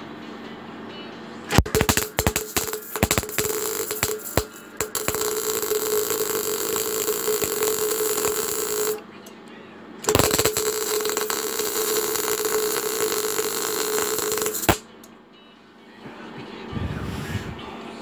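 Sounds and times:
welding arc crackling buzz: 1.5 - 9.0, 10.0 - 14.8.

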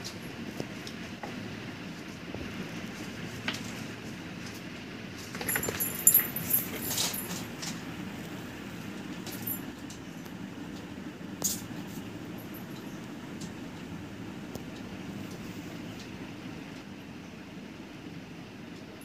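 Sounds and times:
low background hum: 0.0 - 19.0
clattering and rattling objects: 5.2 - 7.9.

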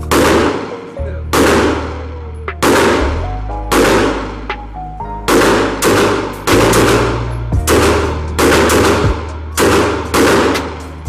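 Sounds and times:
gunshots on shooting range: 0.0 - 4.6, 5.3 - 11.0.

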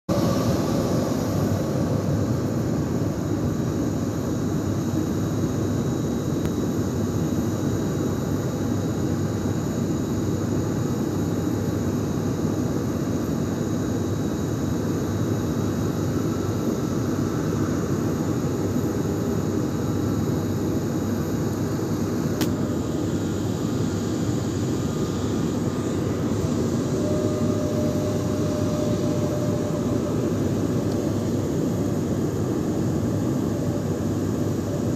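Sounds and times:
jet engines rumbling: 0.0 - 4.6, 22.5 - 34.9.

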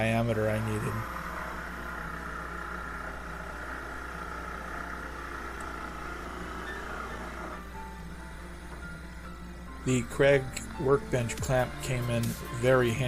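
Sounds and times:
jigsaw cutting plywood: 0.0 - 7.9.

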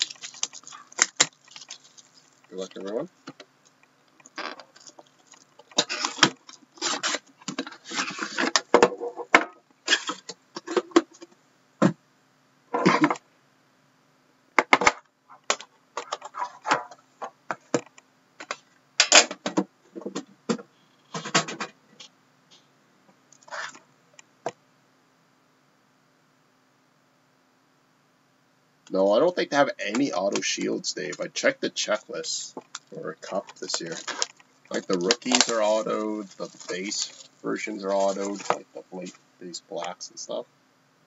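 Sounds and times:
plastic wrap crinkling and tearing: 0.0 - 3.1, 4.2 - 8.6, 32.7 - 39.1
cardboard scraping: 23.5 - 23.8, 33.2 - 38.6.

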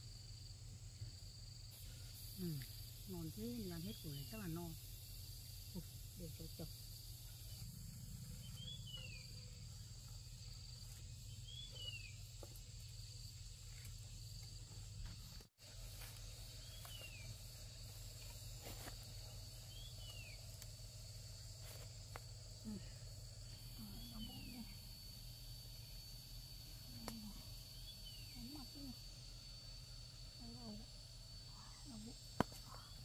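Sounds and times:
insects droning: 0.0 - 33.0.

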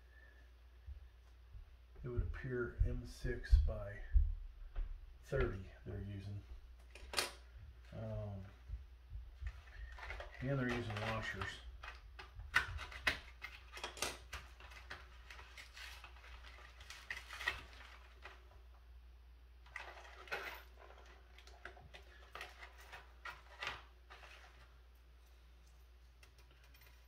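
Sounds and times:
metal bolts and washers clinking: 26.2 - 27.0.

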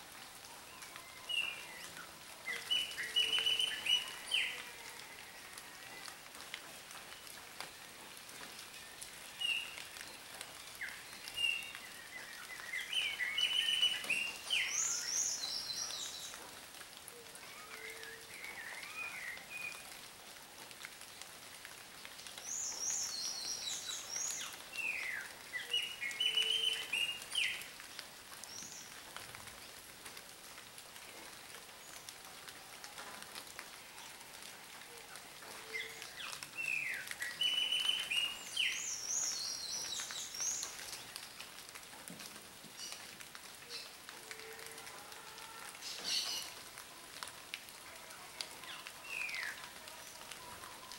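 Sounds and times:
rain pattering: 0.0 - 50.9
songbird singing: 0.6 - 4.8, 8.5 - 16.4, 22.3 - 29.0, 35.6 - 41.6, 48.2 - 50.9.

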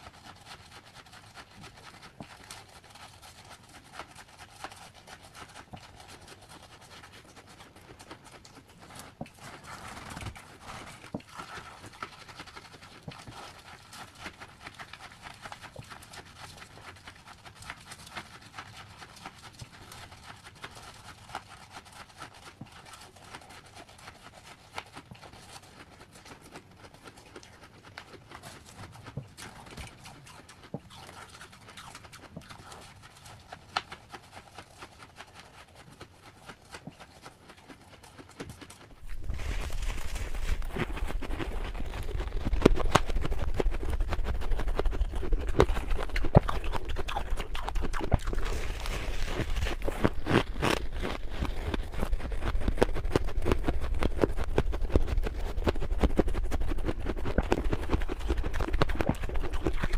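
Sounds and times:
frost crunching being chewed: 0.0 - 59.9
gloved hands squeezing frost: 37.8 - 59.9.

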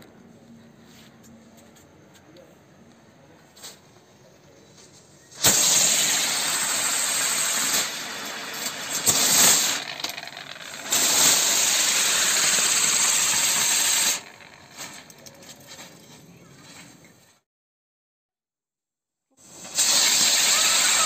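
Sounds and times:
spinning firework hissing: 5.3 - 15.2, 19.4 - 21.0.

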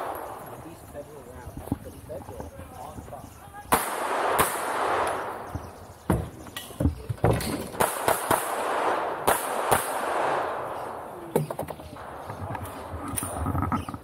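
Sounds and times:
pistol shots: 3.7 - 5.5, 7.7 - 11.1.

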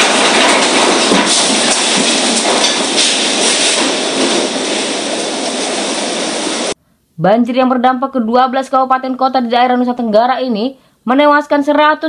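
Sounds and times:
debris knocking and rattling: 0.0 - 5.8
storm wind roaring: 0.0 - 6.8.

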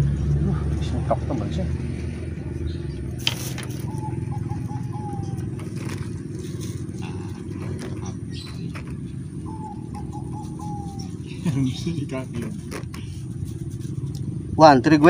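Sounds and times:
low engine drone: 0.0 - 15.0
dove cooing: 3.3 - 14.0.

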